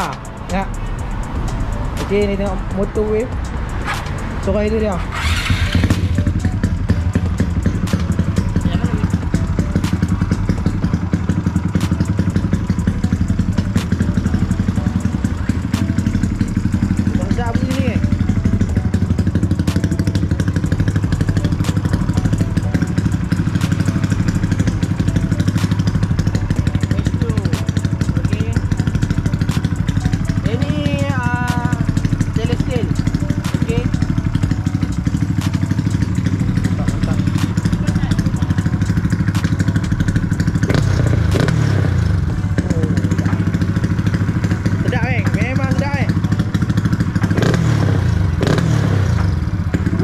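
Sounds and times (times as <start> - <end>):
motorcycle engine idling: 0.0 - 50.0
motorcycle throttle blip: 35.1 - 39.8.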